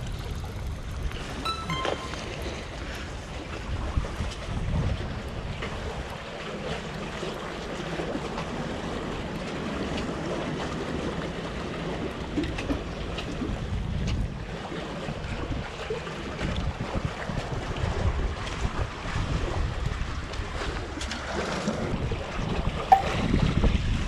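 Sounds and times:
sea water washing around blocks: 0:00.0 - 0:01.3, 0:03.1 - 0:22.9
wind buffeting microphone: 0:03.6 - 0:06.1, 0:21.8 - 0:24.0.

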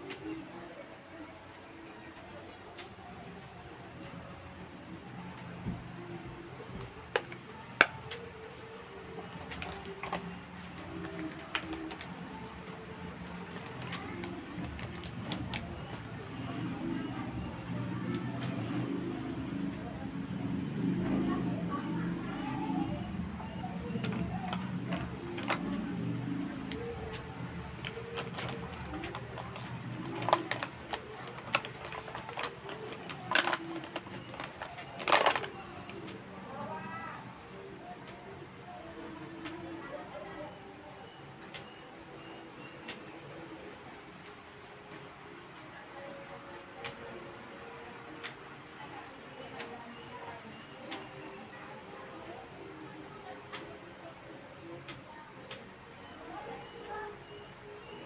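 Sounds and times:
low background hum: 0:00.0 - 0:58.0.

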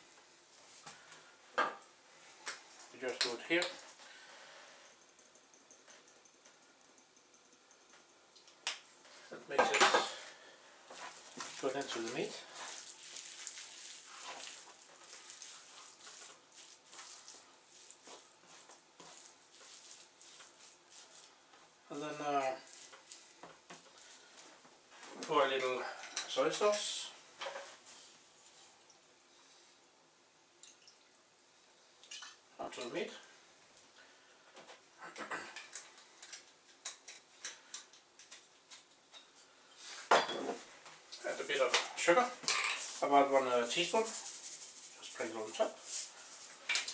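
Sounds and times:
squishing of raw meat by hand: 0:10.9 - 0:24.4.

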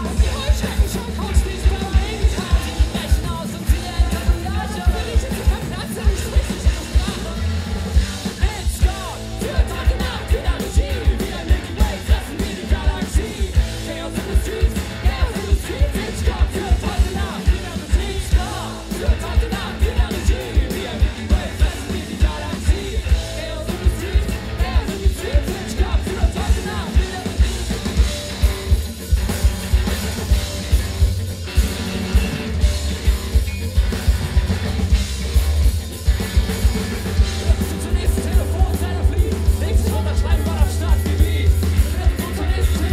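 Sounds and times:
man singing into microphone: 0:00.0 - 0:07.5, 0:08.4 - 0:27.6, 0:37.4 - 0:42.9
drum kit beat: 0:00.0 - 0:42.9
electric guitars: 0:00.0 - 0:42.9.

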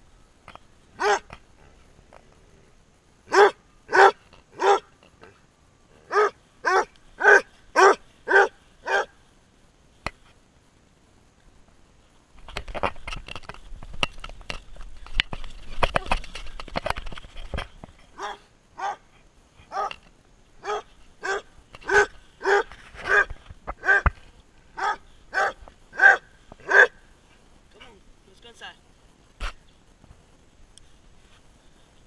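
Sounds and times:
dog barking: 0:01.0 - 0:01.2, 0:03.3 - 0:04.9, 0:06.1 - 0:09.1, 0:18.2 - 0:19.0, 0:20.6 - 0:24.1, 0:24.8 - 0:27.0
camera handling rustle and knocks: 0:12.4 - 0:18.1.

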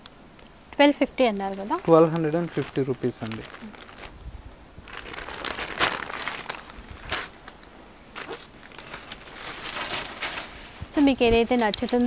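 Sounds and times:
fabric rustling: 0:01.2 - 0:04.2, 0:04.8 - 0:12.0.

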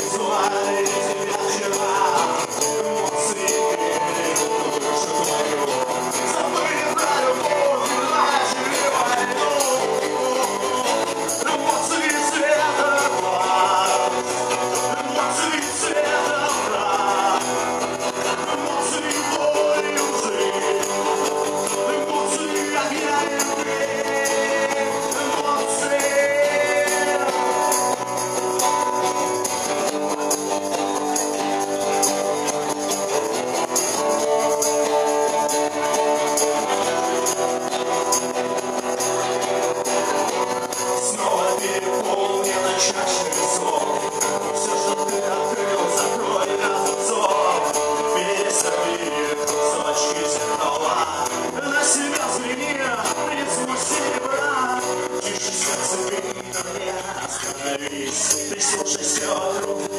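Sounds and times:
live rock band playing: 0:00.0 - 0:59.9
man singing: 0:00.0 - 0:59.9.

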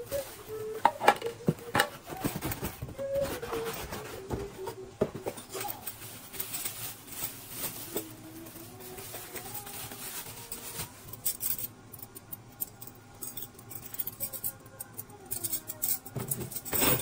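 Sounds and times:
plastic bag crinkling: 0:05.4 - 0:11.7
metal mixer beaters clinking: 0:11.1 - 0:17.0.

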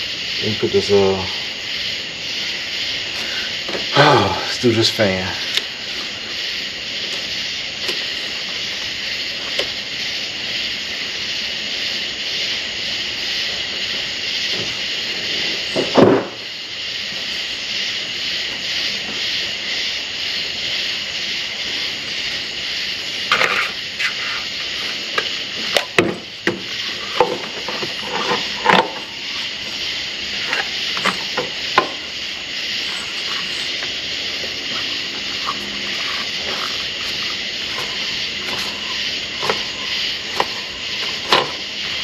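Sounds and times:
steady high hiss: 0:00.0 - 0:42.0
heavy thud: 0:15.8 - 0:16.4.

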